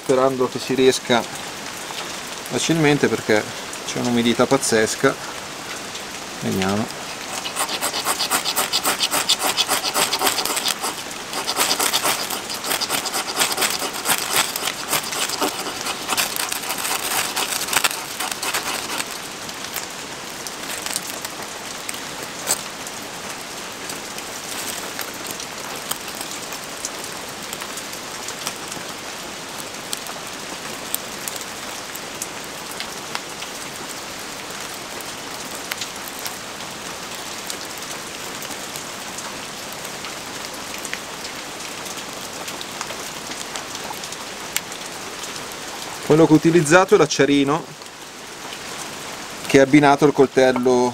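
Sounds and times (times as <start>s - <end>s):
rain on surfaces: 0.0s - 7.3s, 19.1s - 50.9s
ferrocerium rod scraping: 7.0s - 19.3s.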